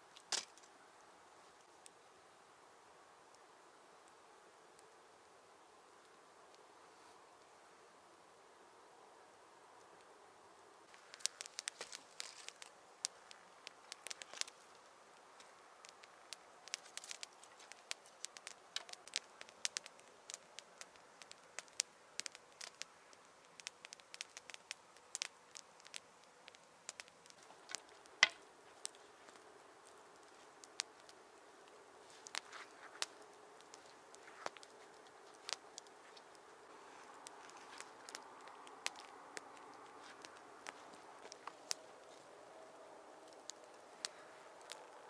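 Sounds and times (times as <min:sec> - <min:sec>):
wood fire crackling and popping: 0:00.0 - 0:00.8, 0:10.8 - 0:45.0.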